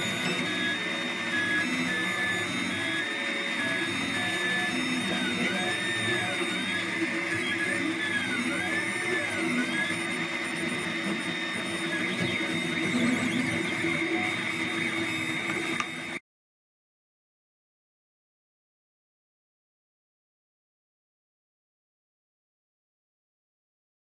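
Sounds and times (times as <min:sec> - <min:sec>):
stepper motors whining: 0:00.0 - 0:16.2.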